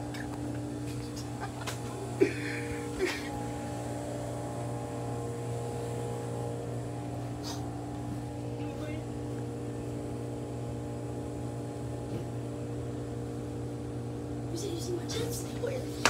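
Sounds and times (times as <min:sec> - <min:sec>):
machine hum with fixed tones: 0:00.0 - 0:16.0.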